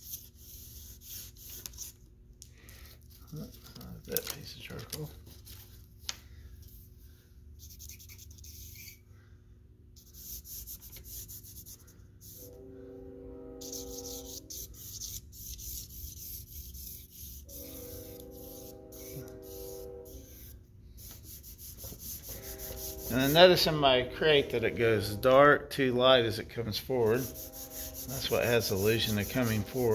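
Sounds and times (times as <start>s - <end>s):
faint steady drone: 12.3s - 14.9s, 15.8s - 29.9s
charcoal scraping on paper: 13.7s - 23.4s, 27.0s - 29.9s.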